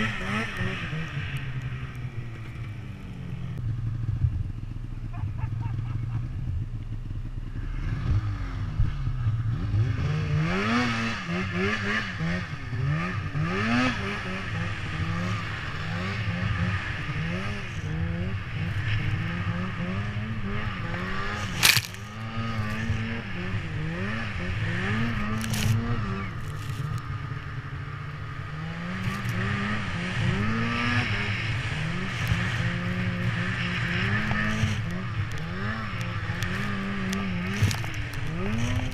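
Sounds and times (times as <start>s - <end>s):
snowmobile engine revving: 0.0s - 38.9s.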